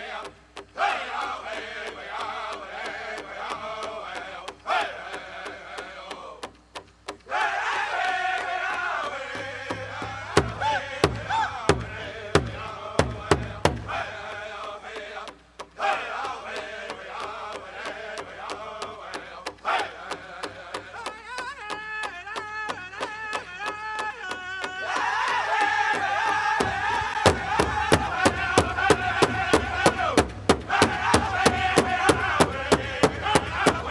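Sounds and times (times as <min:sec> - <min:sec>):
group chanting over drum: 0:00.0 - 0:33.9
heavy drum strokes: 0:09.2 - 0:14.5, 0:25.3 - 0:33.9.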